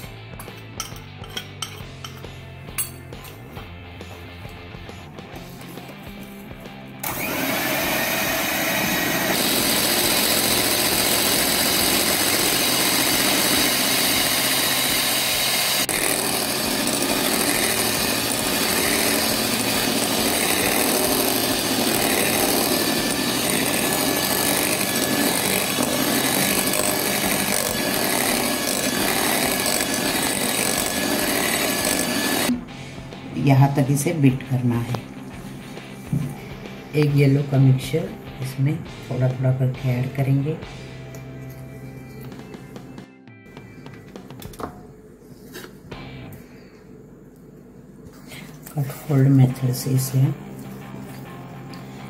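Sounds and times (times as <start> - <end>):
electric hand mixer whining: 7.0 - 32.7.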